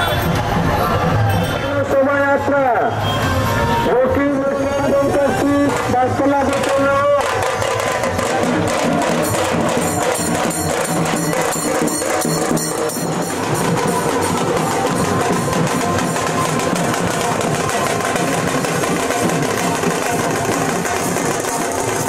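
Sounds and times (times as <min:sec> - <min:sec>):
drums and percussion playing: 0:00.0 - 0:22.0.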